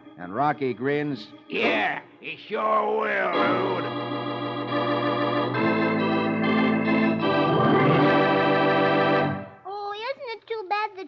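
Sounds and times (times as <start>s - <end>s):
sustained organ chords: 0.0s - 9.6s.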